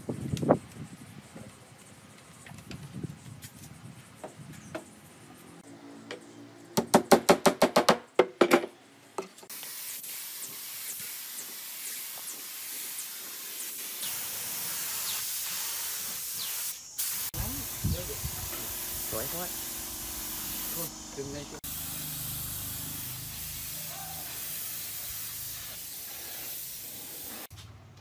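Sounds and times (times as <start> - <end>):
spray gun hissing: 9.5 - 27.5.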